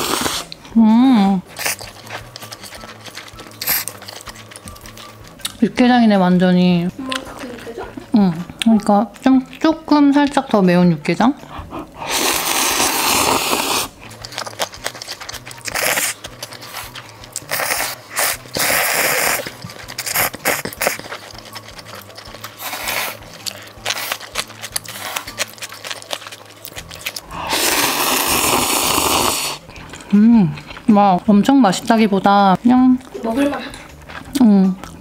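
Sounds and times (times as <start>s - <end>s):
person slurping noodles: 0.0s - 0.6s, 11.8s - 14.0s, 15.6s - 21.7s, 22.5s - 25.3s, 27.2s - 30.2s
chewing: 1.4s - 35.0s.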